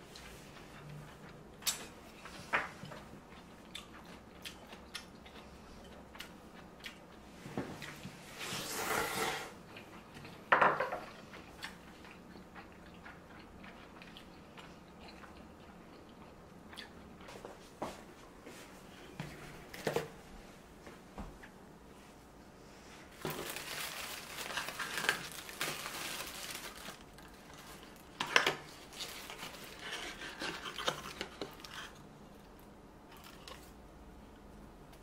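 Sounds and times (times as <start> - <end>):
slurping noodles: 8.4 - 9.6.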